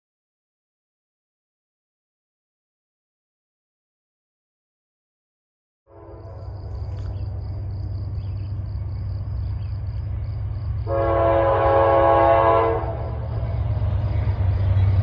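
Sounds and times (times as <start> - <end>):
locomotive air horn blast: 5.9 - 6.6, 10.8 - 13.2
diesel locomotives rumbling: 5.9 - 15.0.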